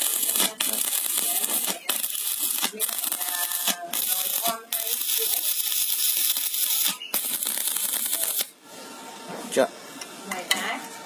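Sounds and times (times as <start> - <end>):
welding arc crackling and hissing: 0.0 - 8.6.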